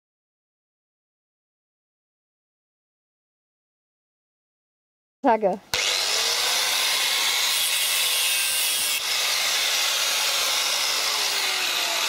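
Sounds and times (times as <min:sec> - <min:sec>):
angle grinder cutting steel: 0:05.7 - 0:12.0.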